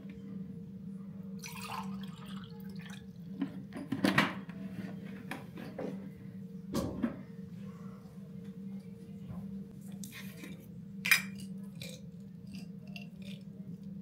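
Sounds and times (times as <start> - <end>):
water pouring into a glass: 1.4 - 3.0.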